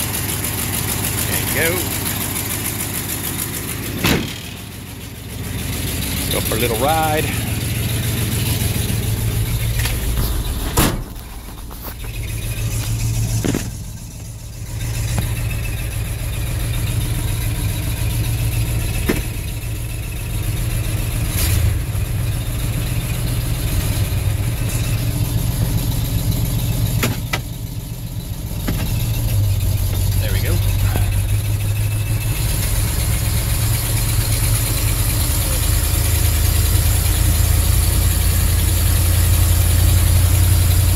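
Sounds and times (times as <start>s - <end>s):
truck engine running: 0.0s - 40.9s
sharp bang: 4.0s - 4.5s, 10.0s - 11.1s.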